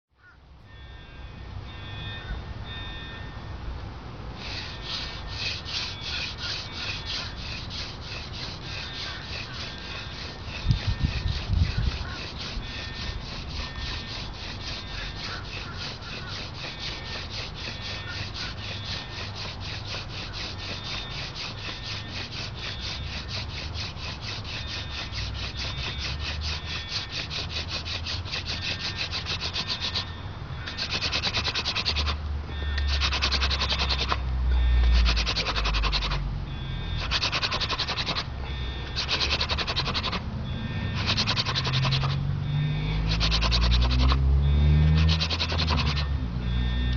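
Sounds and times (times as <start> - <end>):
wooden spindle rasping on hearth board: 4.4 - 36.3, 36.9 - 46.9.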